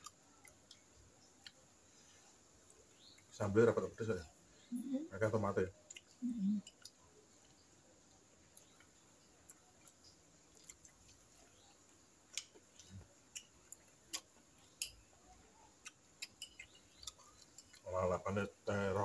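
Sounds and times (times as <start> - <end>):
person chewing with lip smacks: 9.5 - 11.2.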